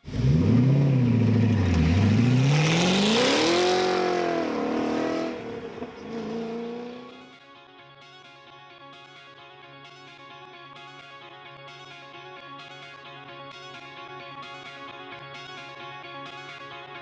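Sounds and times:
car engine revving past: 0.0 - 7.2.

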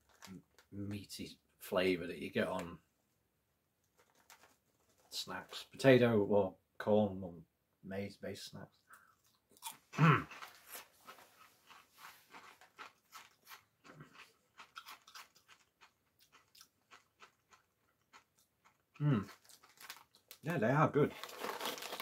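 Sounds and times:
crunchy snacks being chewed: 8.9 - 20.4, 21.1 - 22.0
person humming: 19.0 - 19.3.

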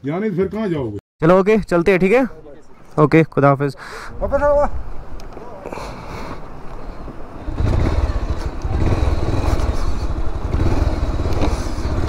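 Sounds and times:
motorcycle engine running: 7.4 - 12.0.

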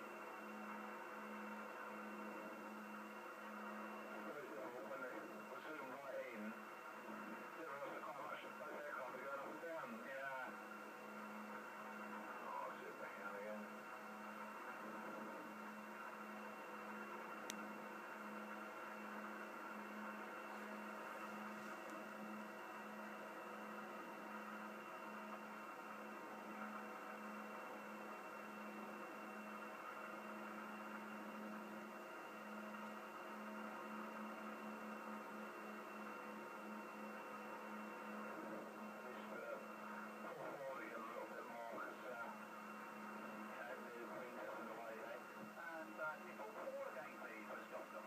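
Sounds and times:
light aircraft engine drone: 0.0 - 48.0
faint click: 17.4 - 17.6.

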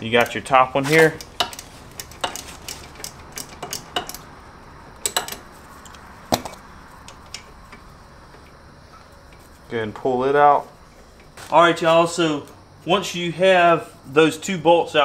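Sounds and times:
tool clicking on metal bolt: 1.1 - 4.3, 5.0 - 5.4.

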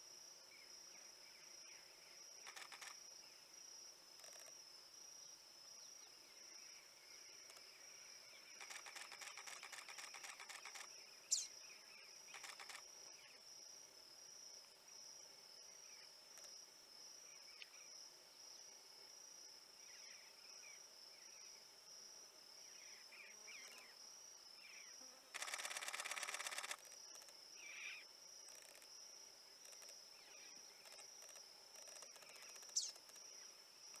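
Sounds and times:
high-pitched insect chirping: 0.6 - 3.4, 5.8 - 13.4, 22.6 - 34.0
rapid rattle-like buzz: 2.4 - 3.0, 8.6 - 10.9, 12.3 - 12.9, 25.3 - 27.4
faint bird chirps: 5.8 - 13.4, 24.6 - 28.8, 29.6 - 33.4.

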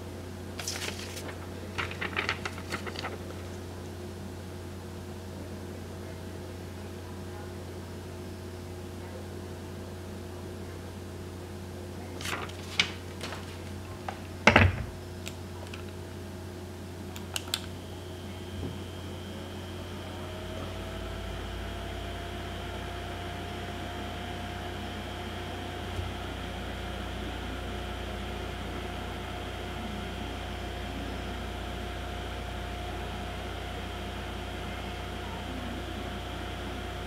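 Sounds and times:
low steady hum: 0.0 - 37.0
mini heater high whine: 0.0 - 37.0.

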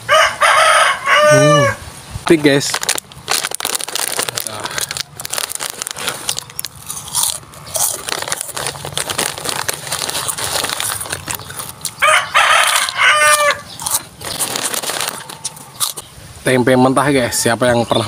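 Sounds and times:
rooster crowing: 0.0 - 1.8, 11.8 - 13.8
crunchy snack chewing: 2.6 - 16.1.

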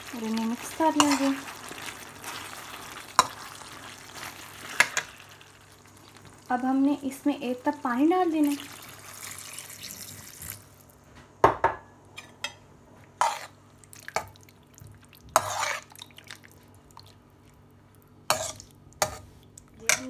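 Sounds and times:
metal spoon scraping wok: 0.8 - 1.4, 15.4 - 15.9, 18.3 - 19.2.

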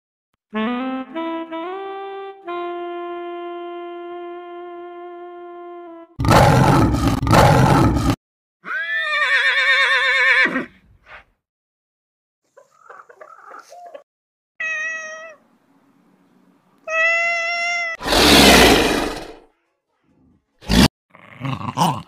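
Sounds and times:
cartoon rhinoceros roar: 6.2 - 8.2, 18.0 - 19.4
horse whinnying: 8.6 - 10.8
cat meowing: 14.6 - 15.4, 16.8 - 18.0.

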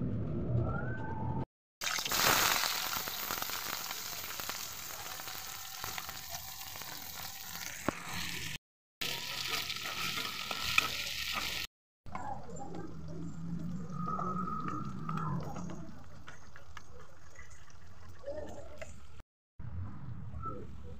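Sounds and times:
onions sizzling in hot oil: 1.8 - 11.7.

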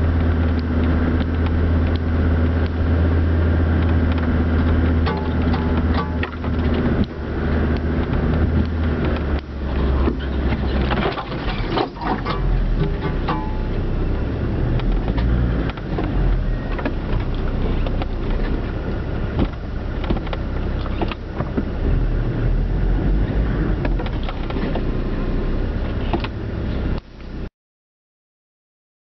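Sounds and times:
vehicle engine idling: 0.0 - 27.5
clicks and knocks: 3.8 - 13.8.

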